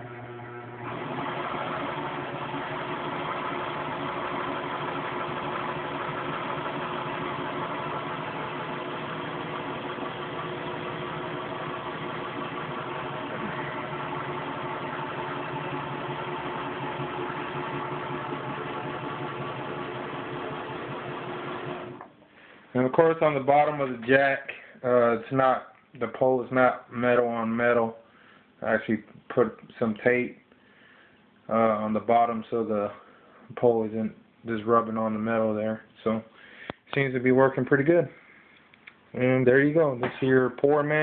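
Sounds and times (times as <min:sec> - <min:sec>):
sewing machine motor humming: 0:00.0 - 0:22.1.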